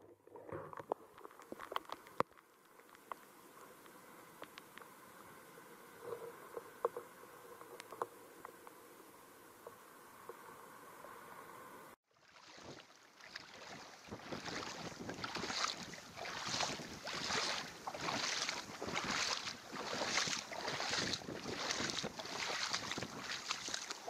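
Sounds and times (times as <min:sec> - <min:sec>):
water splashing from wading: 0:12.1 - 0:24.0.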